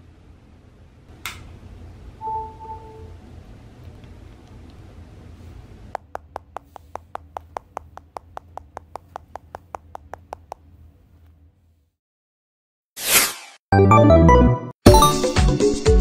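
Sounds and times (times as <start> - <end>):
low steady hum: 0.0 - 11.7
fingertip taps on touchscreen: 6.0 - 10.7.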